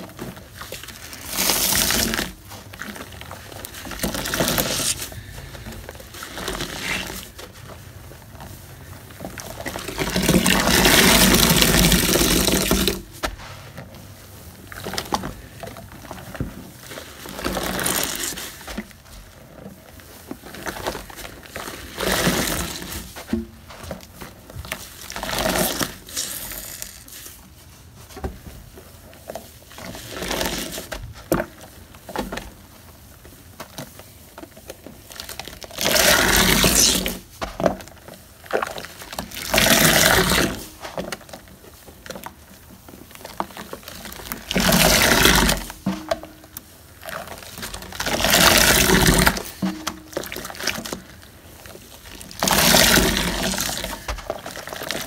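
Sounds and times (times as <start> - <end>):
water splashing in a sink: 52.1 - 55.0.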